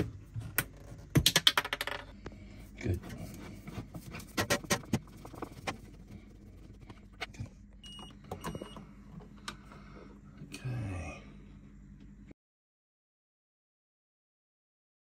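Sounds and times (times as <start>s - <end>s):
low steady hum: 0.0s - 12.4s.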